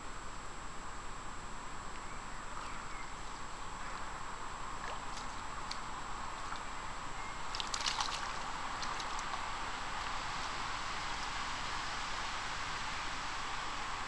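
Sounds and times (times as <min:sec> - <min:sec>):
flowing river water: 0:01.5 - 0:14.0
net splashing in water: 0:07.4 - 0:12.7.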